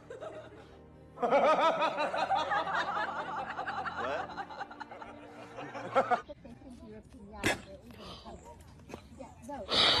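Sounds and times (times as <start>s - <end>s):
people laughing: 0.0s - 6.4s.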